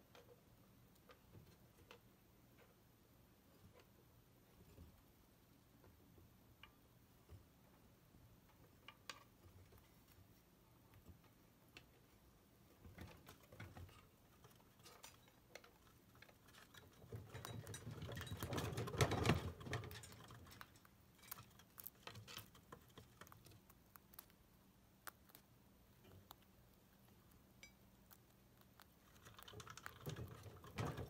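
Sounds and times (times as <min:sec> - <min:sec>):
chinchillas clicking and scratching: 0:13.0 - 0:31.0.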